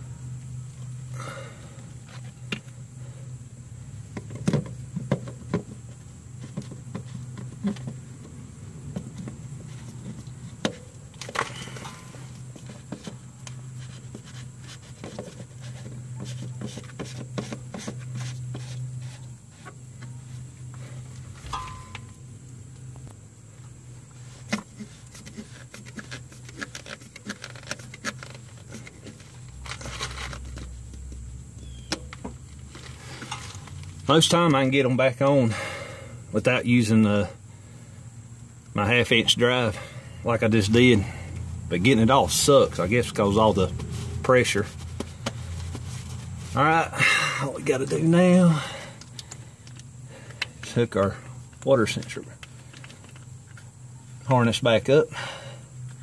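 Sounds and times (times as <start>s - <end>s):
steady low hum: 0.0s - 56.0s
plastic filter housing clicks and scrapes: 24.4s - 30.7s.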